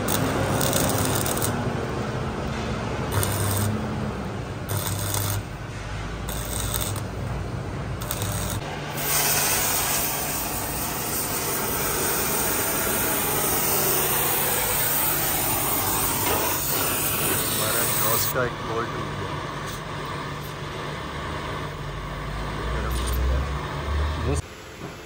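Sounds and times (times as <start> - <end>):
gas torch flame hissing: 0.0 - 1.6, 3.1 - 3.8, 8.0 - 18.5
crackling rasping welding bursts: 0.0 - 1.7, 3.0 - 3.9, 4.6 - 5.6, 6.2 - 7.3, 7.9 - 18.4.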